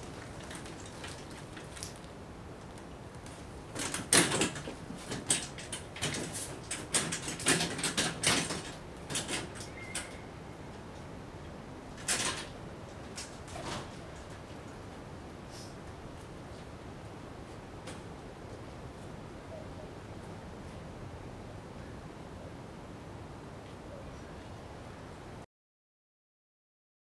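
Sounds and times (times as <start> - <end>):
hand truck knocking and rattling: 3.7 - 10.2.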